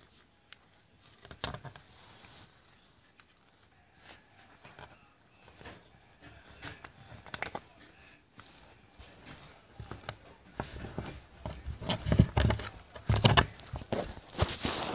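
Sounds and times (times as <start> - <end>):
scratches and scuffles on carpet: 1.8 - 2.6, 13.8 - 14.9.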